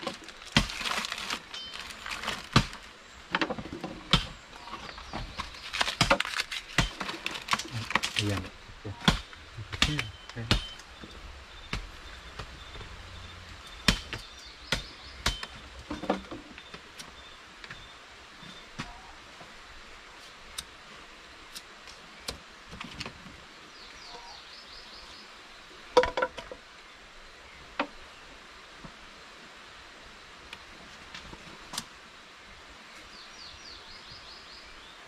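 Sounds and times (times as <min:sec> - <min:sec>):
dry sticks breaking: 0:00.0 - 0:02.9, 0:05.2 - 0:08.4
faint high chirp: 0:01.5 - 0:02.1, 0:10.0 - 0:15.6.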